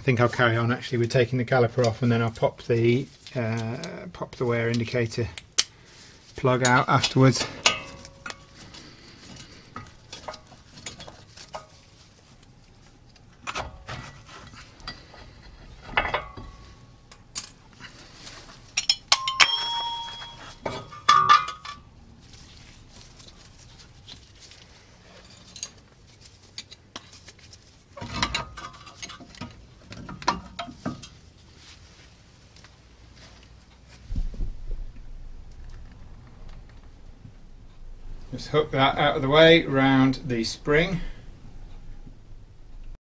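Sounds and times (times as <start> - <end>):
metal clinks and knocks: 6.6 - 8.6, 18.7 - 21.9
ringing clinks of metal parts: 18.8 - 21.6.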